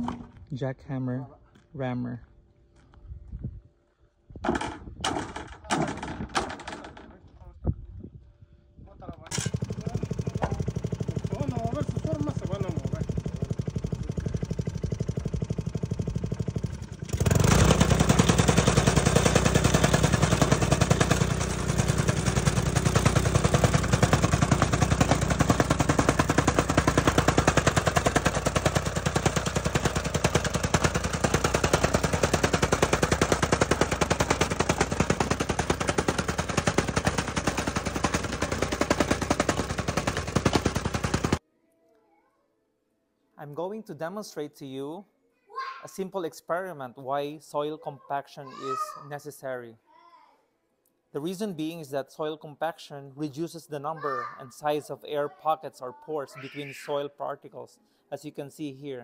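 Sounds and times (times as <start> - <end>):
tamping rammer pounding soil: 9.3 - 41.4.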